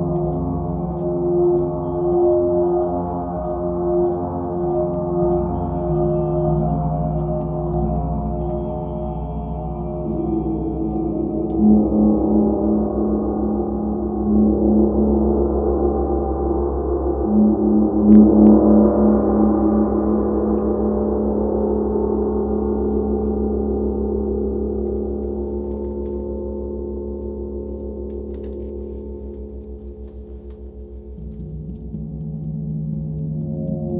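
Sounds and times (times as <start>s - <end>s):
gongs ringing: 0.0s - 15.1s
low throbbing hum: 0.0s - 33.9s.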